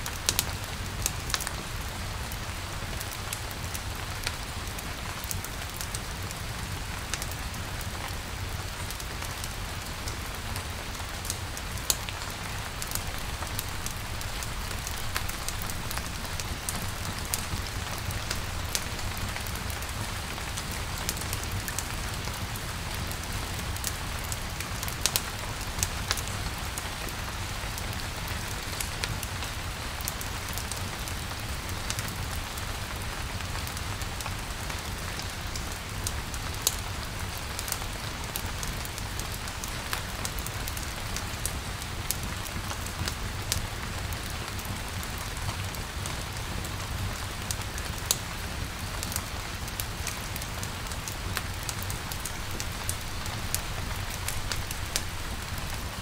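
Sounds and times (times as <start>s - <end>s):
rain pattering: 0.0s - 56.0s.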